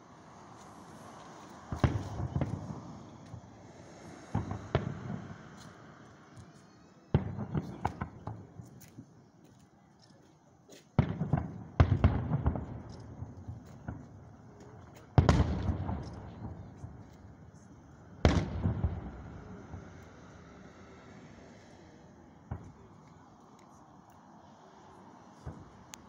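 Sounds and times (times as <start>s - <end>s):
firework crackling pops: 0.3s - 5.9s, 7.1s - 9.0s, 10.7s - 17.4s, 18.2s - 20.5s, 25.4s - 26.0s
firework booms: 1.7s - 5.5s, 7.1s - 8.5s, 11.0s - 14.3s, 15.0s - 17.0s, 18.2s - 20.0s.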